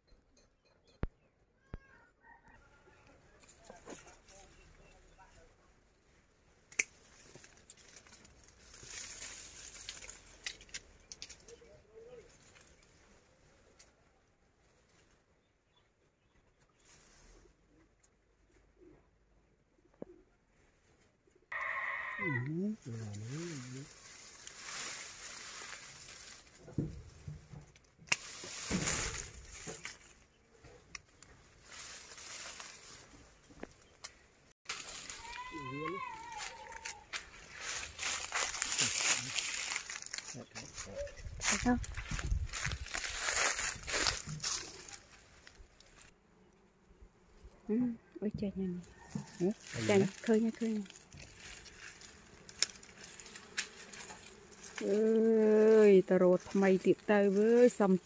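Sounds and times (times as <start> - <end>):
leaves rustling: 3.3 - 14.0, 16.7 - 17.7, 21.5 - 46.2, 48.8 - 58.0
pruning shears snipping: 6.7 - 8.3, 27.7 - 30.1, 50.0 - 55.0
branch snapping: 6.7 - 11.6, 27.6 - 30.2, 33.6 - 35.5, 36.1 - 40.4, 49.3 - 55.0
twigs clicking: 6.7 - 11.7, 23.1 - 46.1, 48.9 - 55.9.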